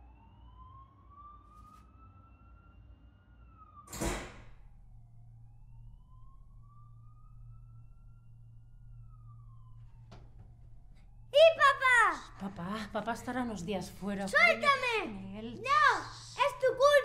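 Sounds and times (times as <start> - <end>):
faint siren wailing: 0.0 - 17.0
low hum: 3.9 - 16.9.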